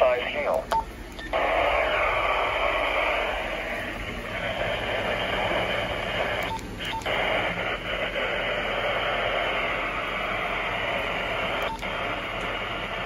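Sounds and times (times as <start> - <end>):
radio static hiss: 0.0 - 13.0
radio key beep: 6.4 - 7.2, 11.6 - 12.0.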